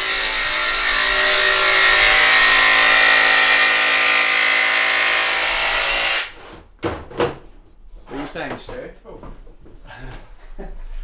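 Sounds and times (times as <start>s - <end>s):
power tool running: 0.0s - 6.4s.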